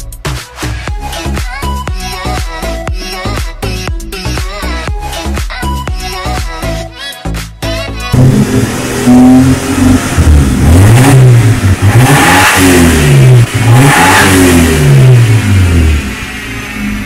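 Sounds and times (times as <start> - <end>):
car engine revving: 8.1 - 17.0.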